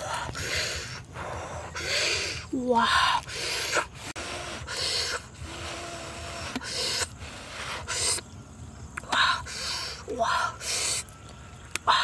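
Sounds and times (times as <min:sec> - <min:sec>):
short hard mouth breaths: 0:03.2 - 0:08.2.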